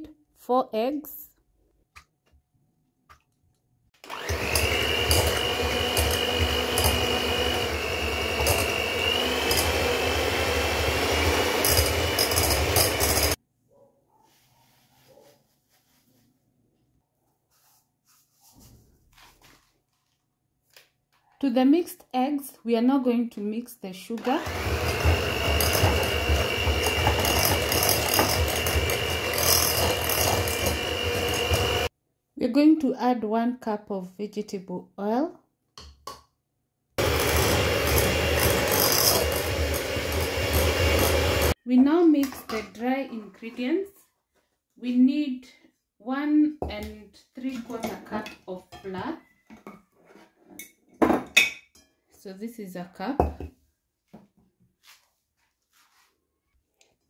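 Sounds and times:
electric hand mixer whining: 0:04.0 - 0:13.4, 0:24.2 - 0:31.9, 0:37.0 - 0:41.6.

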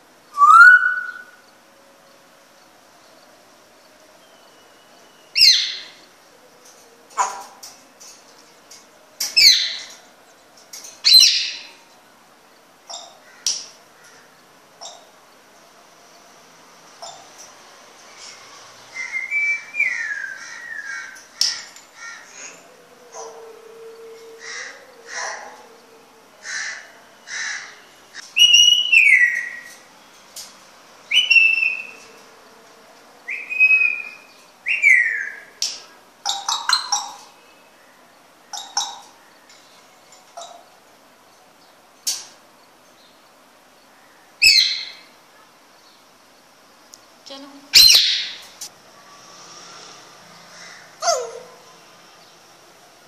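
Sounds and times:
parrot whistling: 0:00.4 - 0:01.3
parrot calling: 0:24.4 - 0:25.7, 0:47.7 - 0:48.4, 0:50.5 - 0:51.7.

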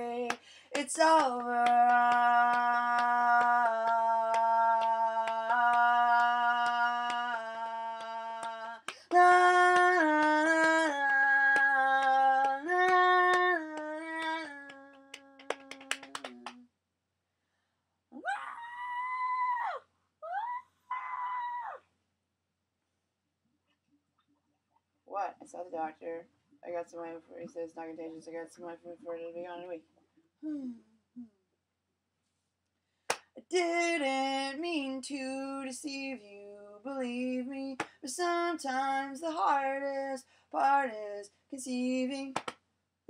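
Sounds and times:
person humming: 0:01.5 - 0:16.6, 0:30.4 - 0:31.4.

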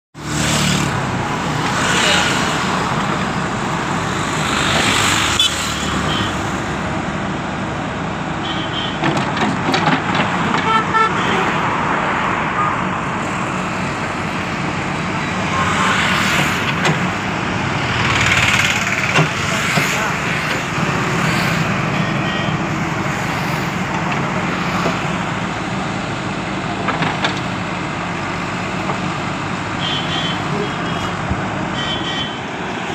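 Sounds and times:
diesel engine running: 0:00.2 - 0:31.8
road traffic passing: 0:00.2 - 0:32.9
backhoe digging: 0:08.9 - 0:10.7, 0:23.7 - 0:31.6.

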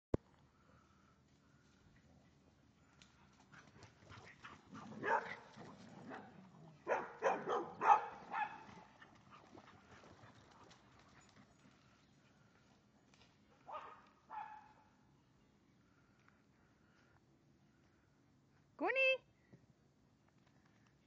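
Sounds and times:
dog barking: 0:05.0 - 0:05.5, 0:06.1 - 0:08.7, 0:13.7 - 0:14.9.

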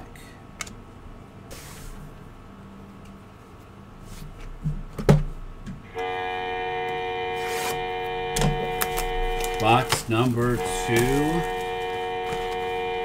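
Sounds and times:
horn-like alarm tone: 0:05.9 - 0:13.0
handling cards and box packaging: 0:07.4 - 0:13.0.

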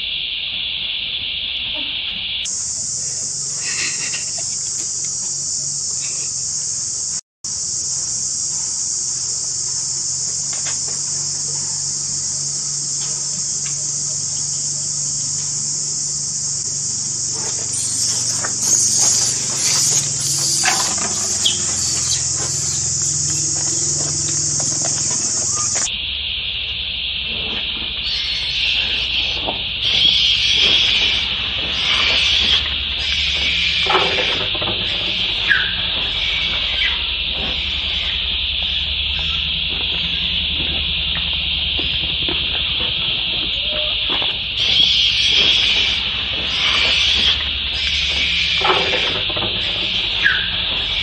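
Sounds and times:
high-pitched insect chorus: 0:00.0 - 0:51.0
low insect drone: 0:00.0 - 0:51.0
scuffling and clicking: 0:16.7 - 0:25.9.

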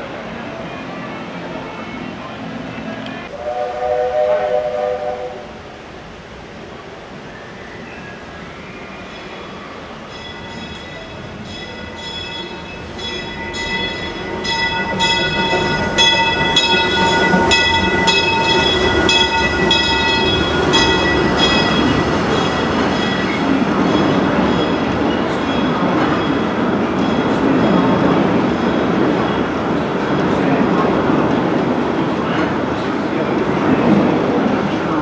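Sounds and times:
train rumbling across bridge: 0:00.0 - 0:35.0
train bell ringing: 0:09.1 - 0:29.0.

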